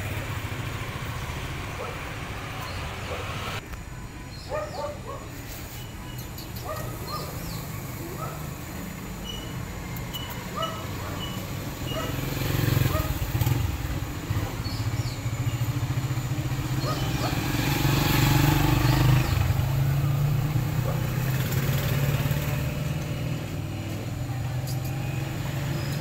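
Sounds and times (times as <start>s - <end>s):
vehicle engine running: 7.0s - 26.0s.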